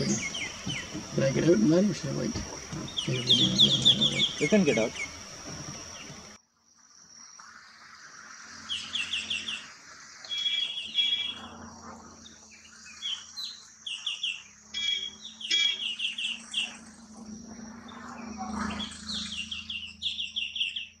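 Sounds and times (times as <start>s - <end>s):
bird chattering calls: 0.0s - 6.4s
steady high-pitched hum: 0.0s - 6.4s, 8.0s - 21.0s.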